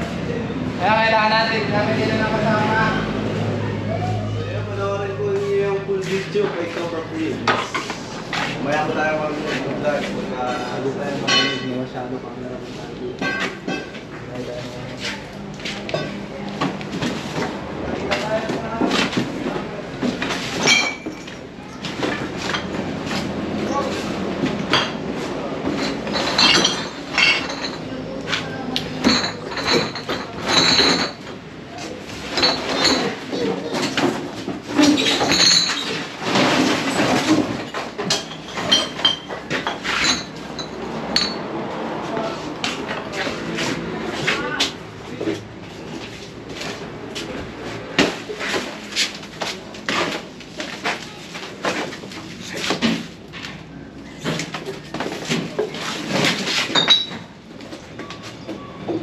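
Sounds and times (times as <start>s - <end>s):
clutter clinking and rattling: 13.2s - 41.6s, 42.6s - 59.0s.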